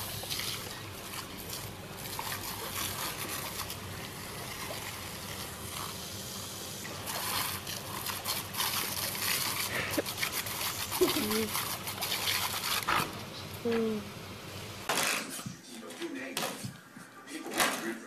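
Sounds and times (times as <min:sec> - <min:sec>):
water jet spraying on grass: 0:00.0 - 0:13.1.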